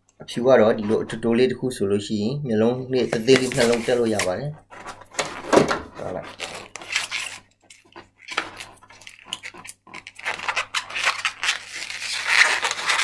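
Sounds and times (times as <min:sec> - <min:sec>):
balloon squeaking and rubbing: 0:06.0 - 0:13.0.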